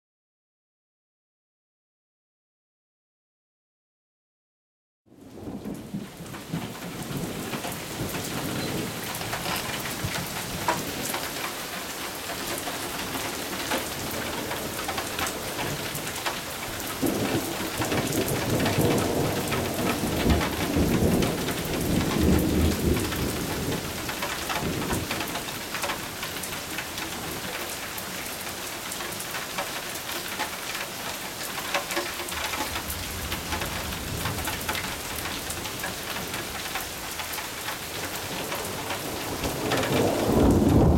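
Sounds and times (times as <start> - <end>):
steady rain falling: 5.1 - 40.9
thunder rumbling: 5.3 - 11.5, 12.2 - 27.6, 32.3 - 37.0, 37.8 - 40.9
sharp raindrop ticks: 6.6 - 40.9.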